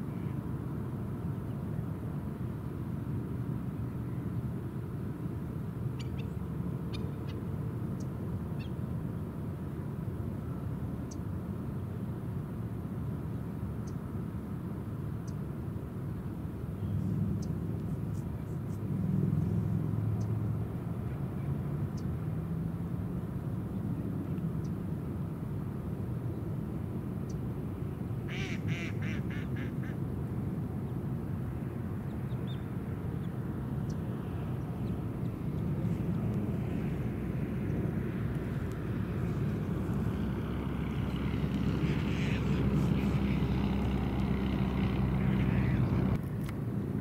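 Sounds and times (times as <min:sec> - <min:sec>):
duck quacking: 0:28.3 - 0:30.0, 0:41.8 - 0:43.8
steady low rumble: 0:30.0 - 0:47.0.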